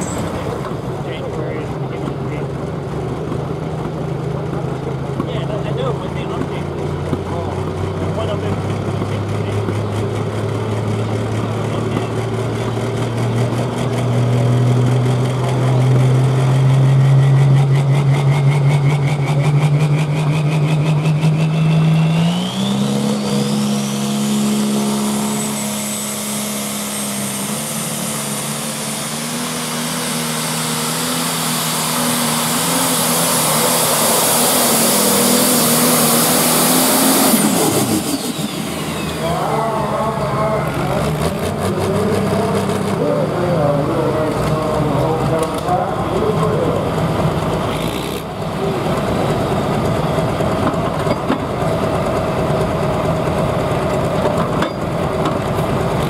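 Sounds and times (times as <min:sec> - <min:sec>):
tractor engine under load: 0:00.0 - 0:56.0
high turbo whistle: 0:21.4 - 0:29.0.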